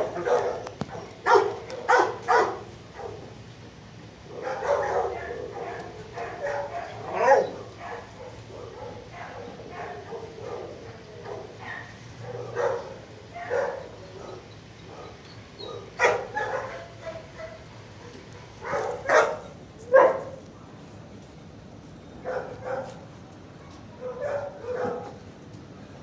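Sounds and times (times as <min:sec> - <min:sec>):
dogs barking: 0:00.0 - 0:03.4, 0:04.2 - 0:20.4, 0:22.2 - 0:23.0, 0:24.0 - 0:25.2.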